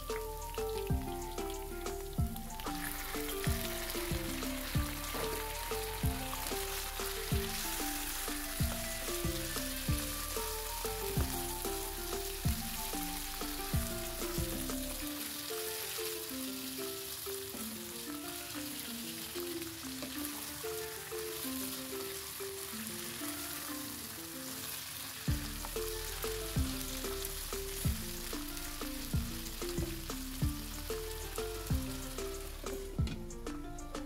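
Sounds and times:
instrumental music with kick drum: 0.0s - 16.8s, 25.3s - 34.0s
spatula stirring in pan: 0.0s - 33.4s
meat sizzling in hot oil: 0.0s - 33.7s.

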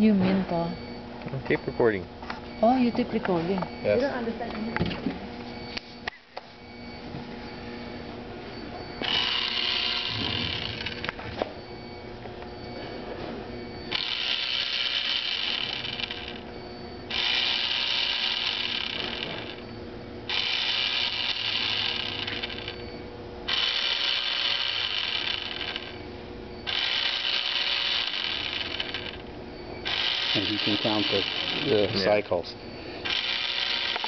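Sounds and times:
soap dispenser pump whirring: 9.0s - 11.2s, 13.9s - 16.4s, 17.1s - 19.6s, 20.3s - 22.8s, 23.5s - 26.0s, 26.6s - 29.2s, 29.8s - 32.0s, 33.0s - 34.0s.

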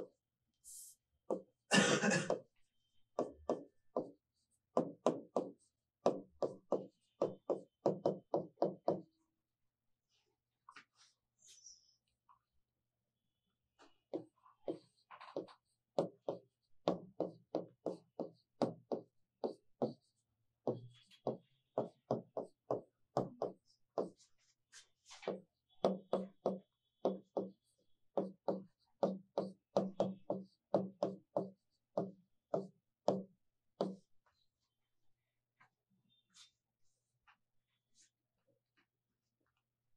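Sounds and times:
chalk writing on blackboard: 14.1s - 33.2s.

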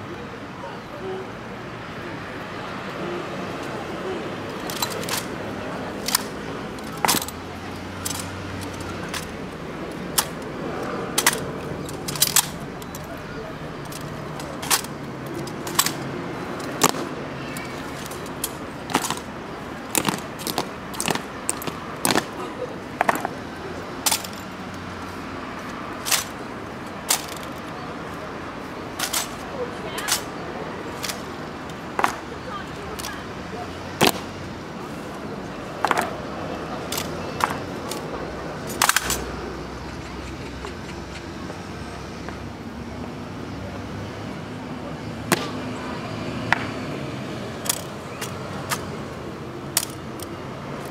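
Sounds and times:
rifles clacking against hands: 4.5s - 23.4s, 24.0s - 24.5s, 26.0s - 26.4s, 27.0s - 27.7s, 29.0s - 32.3s, 36.9s - 39.3s, 47.6s - 48.9s, 49.7s - 50.9s
boot heels striking stone: 32.0s - 32.2s.

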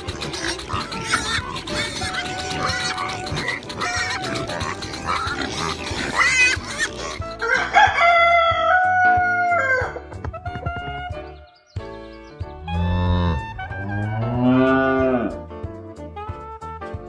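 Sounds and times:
pigs grunting and squealing: 0.0s - 8.2s, 12.6s - 15.4s
rooster crowing: 7.4s - 10.0s.

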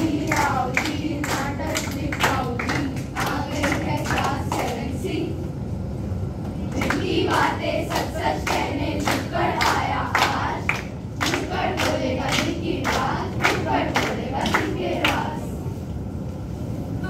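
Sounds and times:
rhythmic hand clapping: 0.0s - 5.0s, 6.7s - 15.4s
children chanting in unison: 0.0s - 5.4s, 6.8s - 15.6s.

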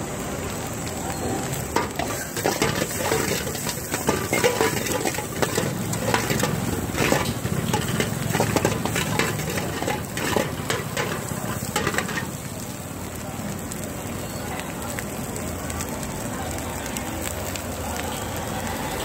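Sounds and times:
frying sizzle: 0.0s - 19.0s
utensil scraping a pan: 1.8s - 12.3s.

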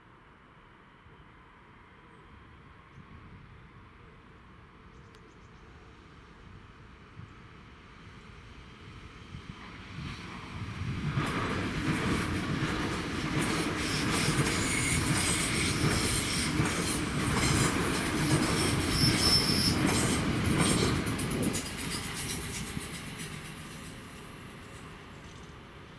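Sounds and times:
train wheels clattering over rail joints: 11.2s - 24.1s
wheels squealing on rails: 11.2s - 25.9s.

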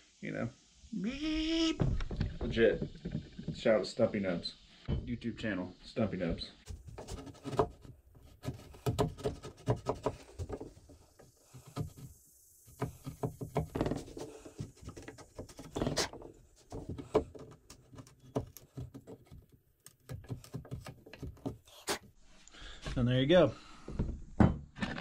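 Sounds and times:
chisel scraping wood: 6.7s - 22.1s.

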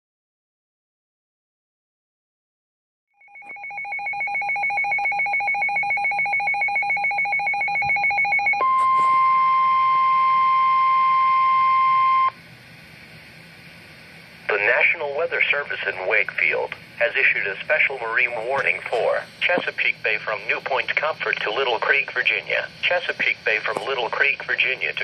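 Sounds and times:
pulsing two-pitch electronic beeping: 3.2s - 12.4s
steady alarm tone: 3.2s - 12.4s
faint radio hiss: 8.7s - 9.4s, 11.9s - 25.0s.

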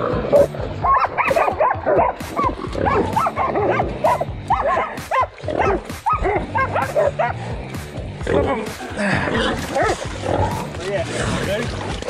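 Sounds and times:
dogs barking and yipping: 0.3s - 7.6s, 8.7s - 10.9s.

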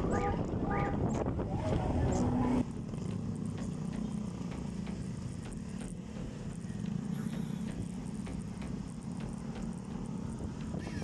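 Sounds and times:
traffic engine rumble: 0.0s - 11.0s
faint regular ticks: 2.8s - 10.8s.

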